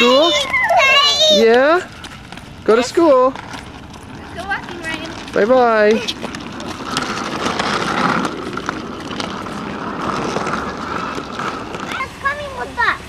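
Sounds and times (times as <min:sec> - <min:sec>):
wheels clicking over joints: 0:00.0 - 0:12.9
backpack wheels rumbling on concrete: 0:00.0 - 0:13.0.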